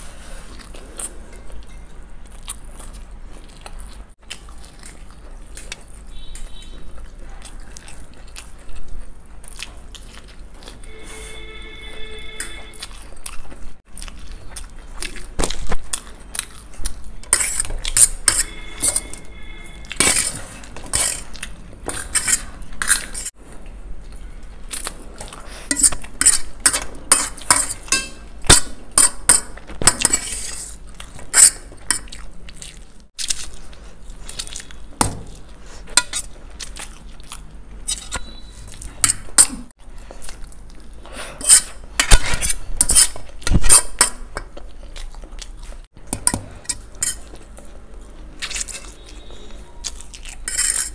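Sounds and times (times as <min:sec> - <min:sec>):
forks clinking on metal plates: 0:25.7 - 0:30.3.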